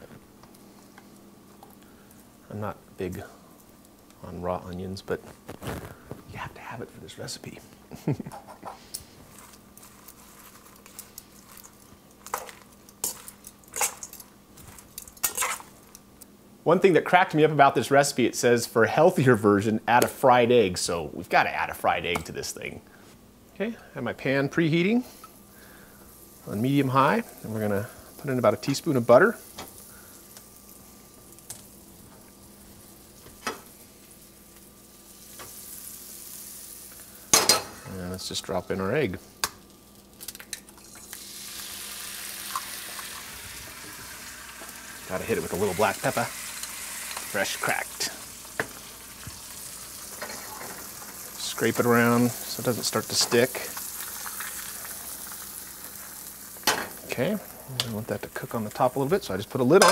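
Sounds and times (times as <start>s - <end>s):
butter sizzling in frying pan: 25.4s - 59.8s.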